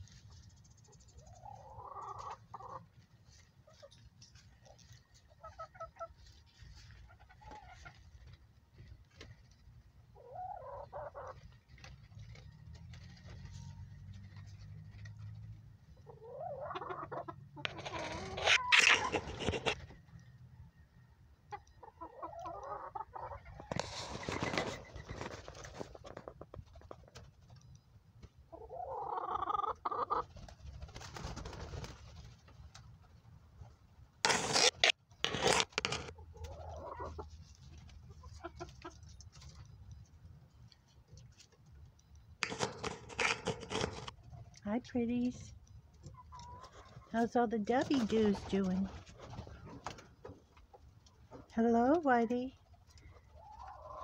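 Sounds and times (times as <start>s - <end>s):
scratching and clicking: 17.6s - 20.3s, 34.2s - 36.2s, 37.1s - 44.7s.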